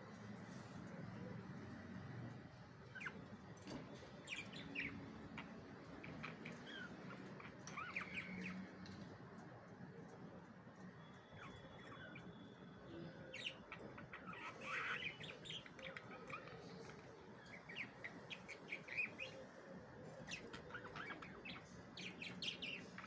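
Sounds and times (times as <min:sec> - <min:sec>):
budgerigars chirping: 0:02.9 - 0:03.2, 0:04.2 - 0:08.6, 0:13.3 - 0:16.6, 0:17.4 - 0:19.4, 0:20.3 - 0:23.0.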